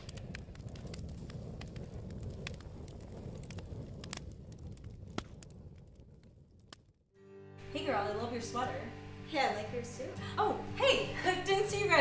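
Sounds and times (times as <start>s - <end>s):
fire pops and snaps: 0.0s - 7.1s
low rumble of flames: 0.0s - 10.1s.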